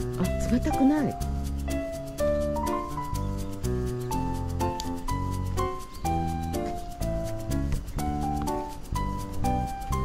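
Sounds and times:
light melody: 0:00.0 - 0:10.0
steady tapping beat: 0:00.0 - 0:10.0.

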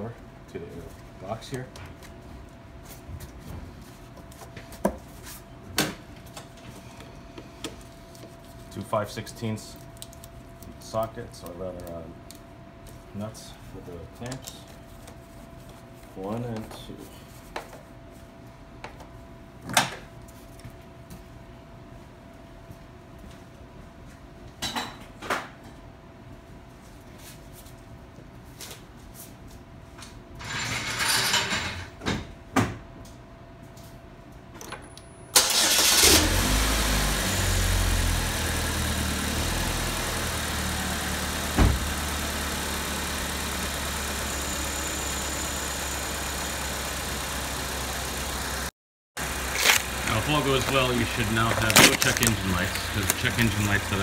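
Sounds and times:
car engine starting and idling: 0:35.4 - 0:54.0.

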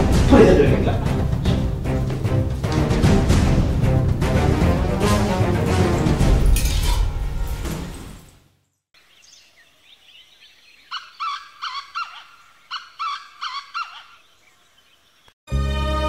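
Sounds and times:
background music: 0:00.0 - 0:08.4, 0:15.5 - 0:16.0
bird calling: 0:09.0 - 0:15.4
faint bird chirps: 0:09.0 - 0:15.4.

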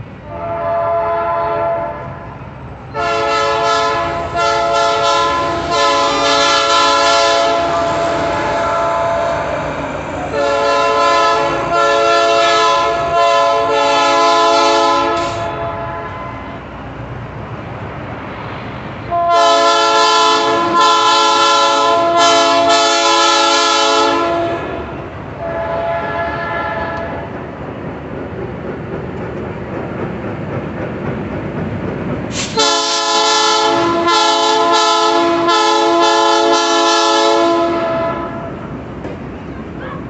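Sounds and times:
train wheels rumbling on rails: 0:00.0 - 0:40.0
locomotive air horn blasts: 0:00.2 - 0:09.7, 0:10.3 - 0:16.7, 0:19.1 - 0:27.3, 0:32.3 - 0:38.7.

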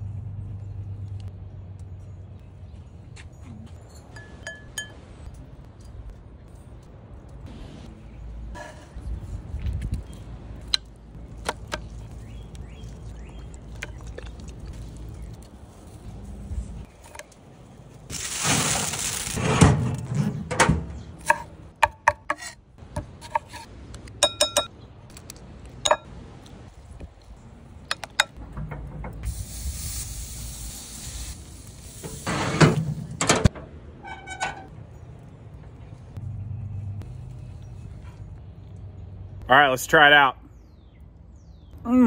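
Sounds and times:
chicken sizzling on grill: 0:18.1 - 0:19.6, 0:29.2 - 0:33.1
utensil clinking glass bowl: 0:24.2 - 0:24.7.

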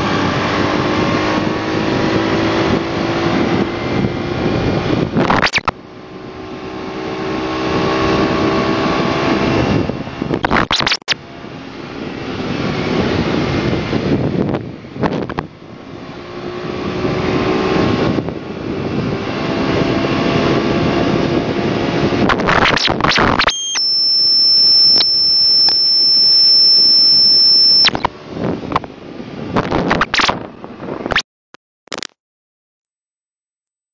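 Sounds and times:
wind rush on microphone: 0:00.0 - 0:23.5, 0:27.8 - 0:31.2
scooter engine drone: 0:00.0 - 0:31.2
steady high-pitched tone: 0:22.6 - 0:28.1.

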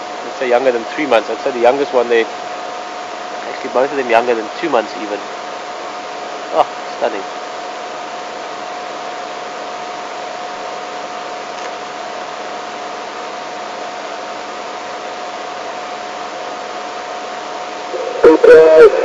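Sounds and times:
constant thin whine: 0:00.0 - 0:19.0
steady hiss: 0:15.4 - 0:19.0.

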